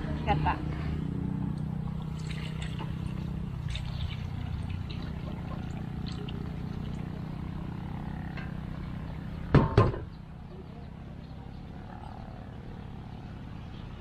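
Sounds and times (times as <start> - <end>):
liquid pouring through strainer: 2.0 - 7.0.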